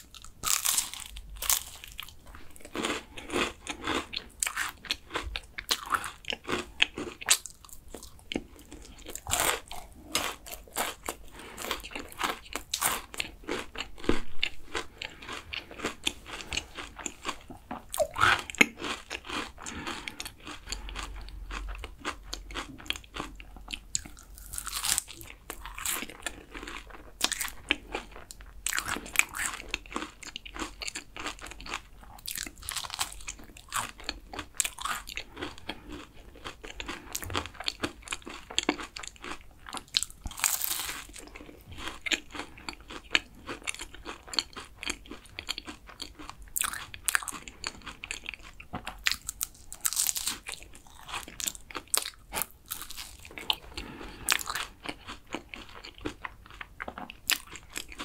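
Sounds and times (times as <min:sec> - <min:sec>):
crisp pastry crunching: 0:00.0 - 0:58.0
wet chewing: 0:00.0 - 0:58.0.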